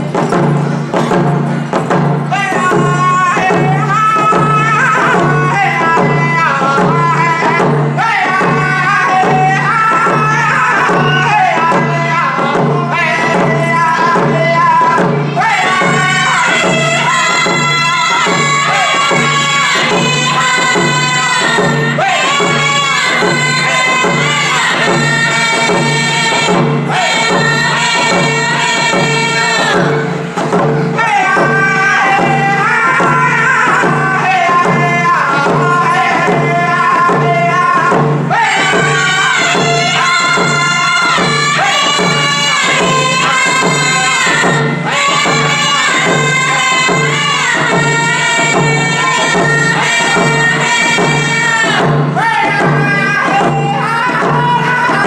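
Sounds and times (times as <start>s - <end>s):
hand drums beating: 0.0s - 55.0s
men and women singing: 0.0s - 55.0s.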